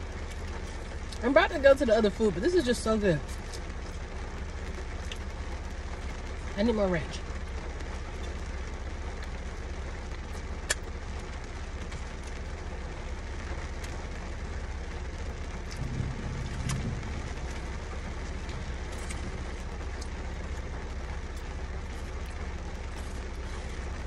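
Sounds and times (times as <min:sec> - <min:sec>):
car interior rumble: 0:00.0 - 0:24.0
short low hum: 0:13.9 - 0:24.0.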